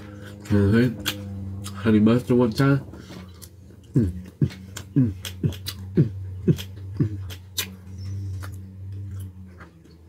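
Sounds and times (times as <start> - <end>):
low steady hum: 0.0 - 10.0
man chewing food: 0.0 - 10.0
wet mouth clicks: 1.0 - 1.8, 3.4 - 7.8
man's mm sounds of enjoyment: 3.4 - 8.6.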